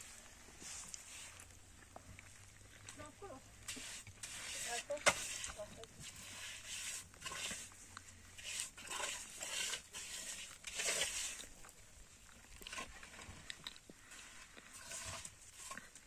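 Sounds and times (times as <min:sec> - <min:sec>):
steel trowel scraping mortar: 0:03.6 - 0:11.7, 0:12.6 - 0:13.4, 0:14.1 - 0:16.0.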